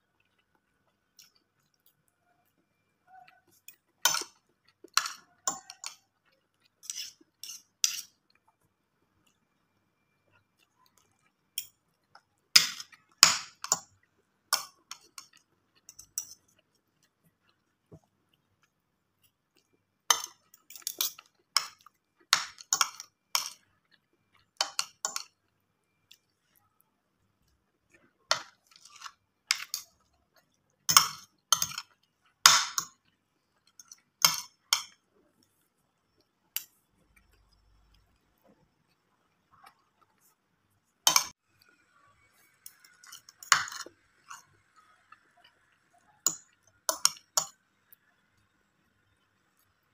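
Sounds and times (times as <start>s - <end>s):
cutlery clinking on plate: 4.0s - 6.0s, 30.9s - 31.9s, 42.6s - 44.5s
fork and spoon clinking on plate: 6.8s - 8.2s.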